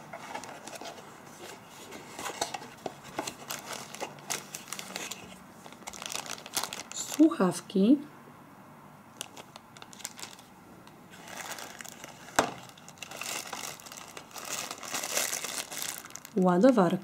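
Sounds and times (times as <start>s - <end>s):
cardboard box rustling: 0.0s - 7.0s, 11.1s - 16.2s
plastic bags crinkling: 2.2s - 7.4s, 9.2s - 10.5s, 11.1s - 17.0s.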